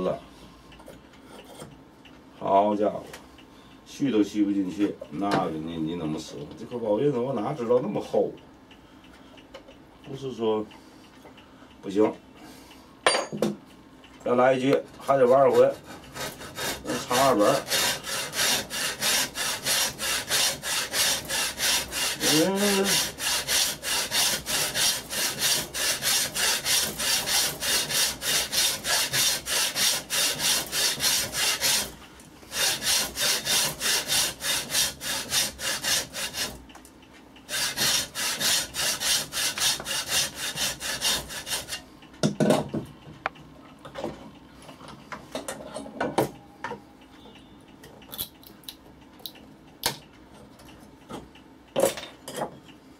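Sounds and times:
frame saw cutting wood: 15.0 - 36.6, 37.5 - 41.8.

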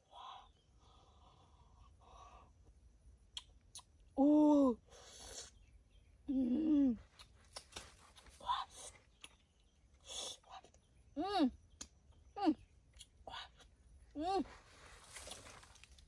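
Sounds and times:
person humming mmm: 6.3 - 7.0.

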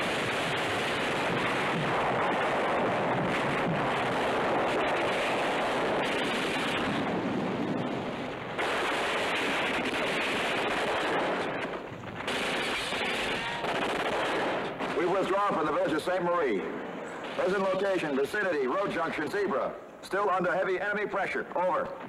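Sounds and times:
gunfire: 0.0 - 16.0
explosions: 0.0 - 19.3.

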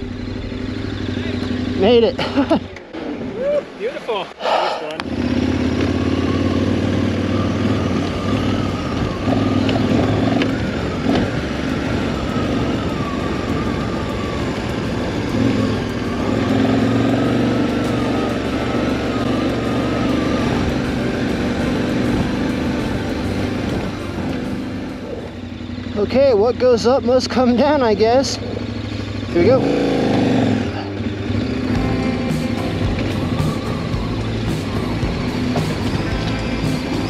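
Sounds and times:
motorcycle engine running: 0.0 - 3.8, 5.0 - 37.0.

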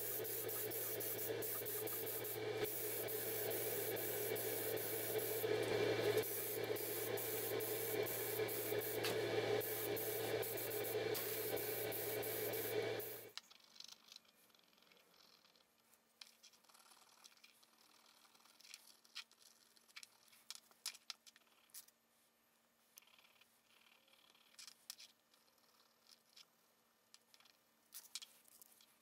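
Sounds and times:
low hum: 0.0 - 13.3
paint spraying hiss: 0.0 - 13.3.

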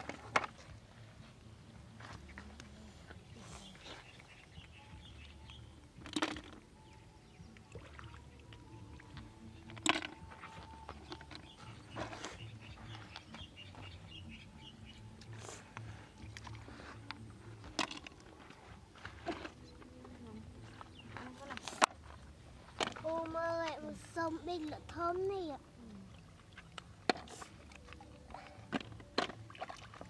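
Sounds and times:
hands in shallow water: 0.0 - 24.1, 25.5 - 30.0
faint bird chirping: 2.2 - 5.9, 10.4 - 16.4.

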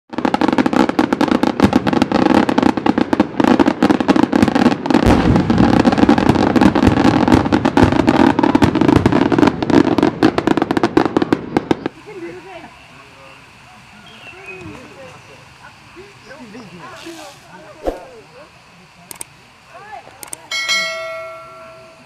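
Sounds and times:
rapid firecracker bangs: 0.1 - 12.1
steady rushing noise: 17.6 - 18.5.

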